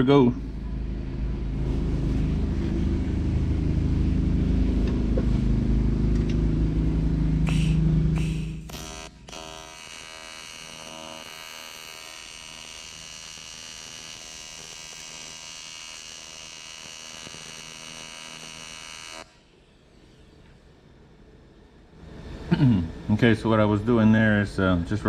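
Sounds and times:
welding arc buzzing: 0:06.8 - 0:19.5.

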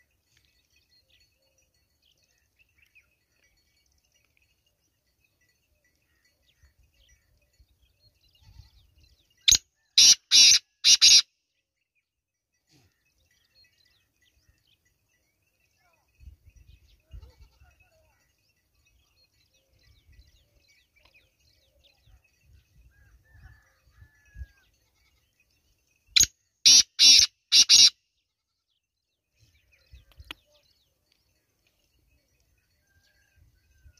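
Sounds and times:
francolin calling: 0:09.5 - 0:11.3, 0:26.1 - 0:28.0.

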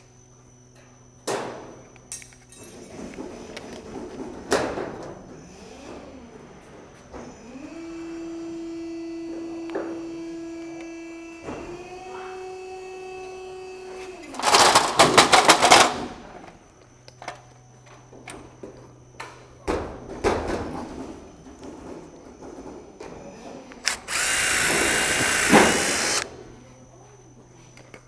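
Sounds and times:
drill grinding into metal: 0:23.8 - 0:26.3
power drill whining: 0:23.8 - 0:26.3.

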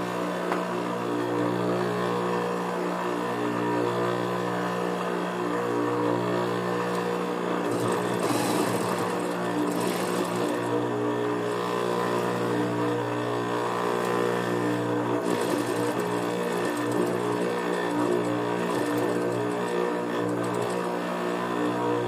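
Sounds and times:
sewing machine motor humming: 0:06.6 - 0:13.1, 0:13.7 - 0:22.0
sewing machine needle stitching: 0:07.6 - 0:10.8, 0:15.2 - 0:20.9.

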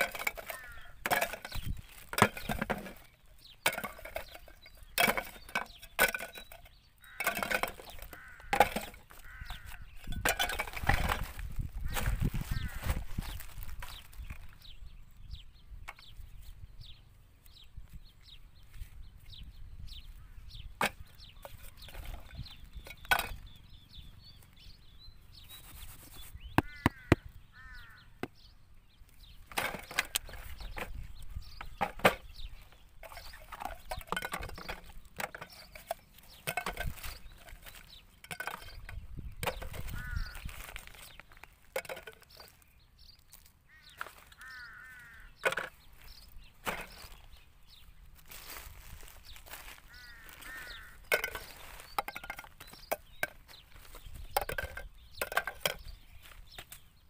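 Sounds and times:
plastic items dropped into bucket: 0:00.0 - 0:09.2, 0:10.0 - 0:14.5, 0:29.5 - 0:32.3, 0:33.0 - 0:42.6, 0:45.4 - 0:45.8, 0:46.6 - 0:47.2, 0:48.3 - 0:55.9
plastic bags rustling: 0:39.7 - 0:41.8, 0:48.1 - 0:52.3.

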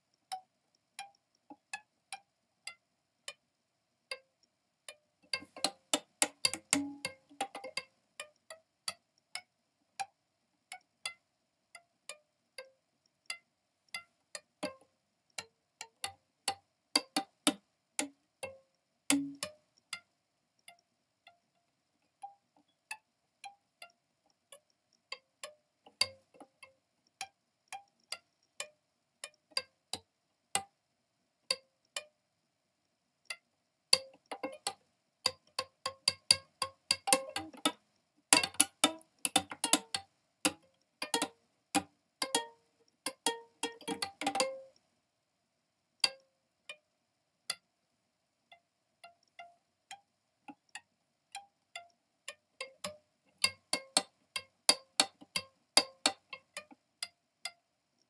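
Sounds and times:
slow plucked melody: 0:04.9 - 0:30.7, 0:33.3 - 0:44.8, 0:48.5 - 0:57.6.

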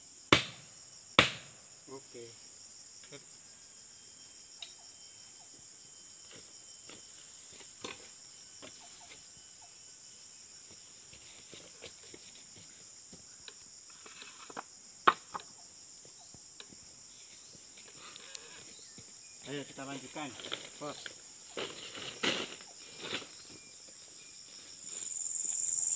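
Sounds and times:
insects chirring: 0:00.0 - 0:25.9.

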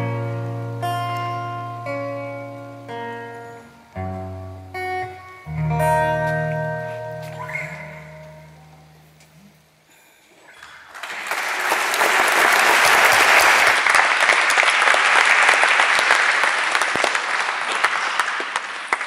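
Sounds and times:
audience applauding: 0:10.6 - 0:19.0.

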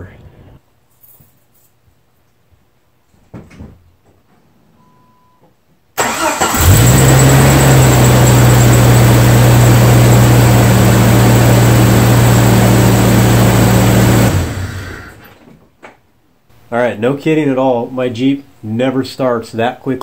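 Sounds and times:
car engine cranking and idling: 0:06.0 - 0:15.3.

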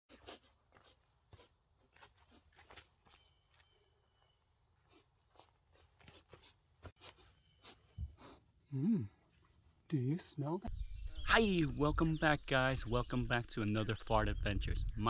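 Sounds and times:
footsteps through grass and leaves: 0:00.1 - 0:08.4.

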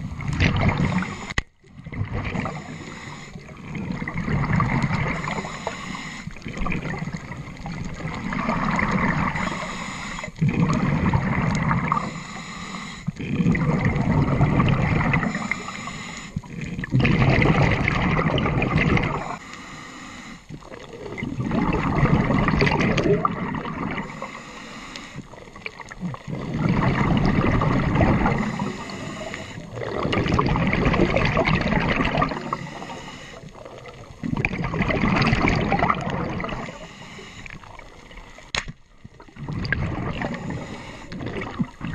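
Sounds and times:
diver exhaling bubbles: 0:00.0 - 0:19.4, 0:20.5 - 0:24.5, 0:25.2 - 0:38.4, 0:39.1 - 0:41.9
diver inhaling through regulator: 0:00.7 - 0:01.4, 0:02.4 - 0:03.7, 0:04.8 - 0:06.5, 0:08.7 - 0:11.1, 0:11.8 - 0:13.6, 0:15.0 - 0:16.9, 0:19.0 - 0:20.6, 0:23.8 - 0:25.4, 0:26.2 - 0:30.0, 0:32.3 - 0:33.7, 0:36.2 - 0:38.5, 0:39.6 - 0:41.6.

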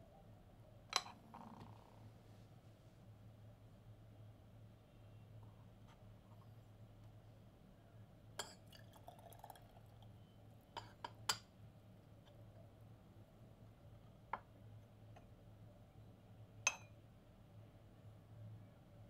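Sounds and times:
tea pouring and dripping: 0:08.4 - 0:10.2
porcelain lid clinking: 0:16.7 - 0:17.0.

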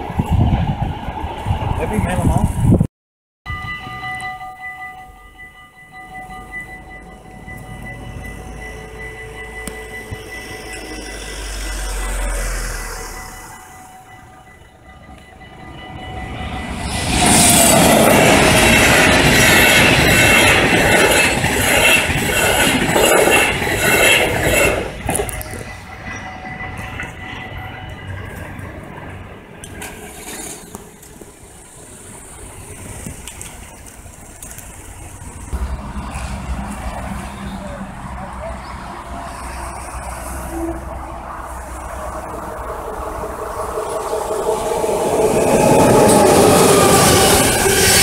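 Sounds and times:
train wheels clattering over rails: 0:16.8 - 0:31.3.

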